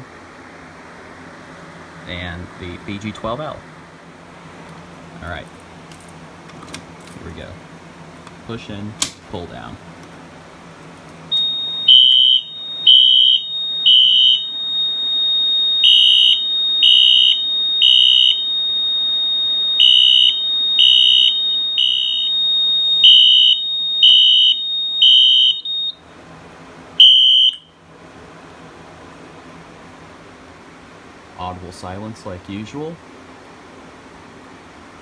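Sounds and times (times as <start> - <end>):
fire alarm horn blasts: 11.3 - 26.0, 27.0 - 27.8
steady high alarm tone: 11.3 - 26.0, 27.0 - 27.8.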